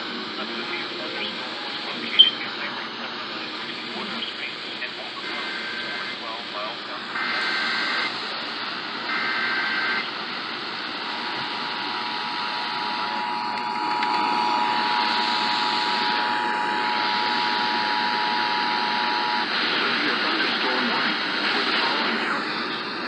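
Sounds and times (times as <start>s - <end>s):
radio hiss: 0.0s - 23.0s
data burst: 0.6s - 2.7s.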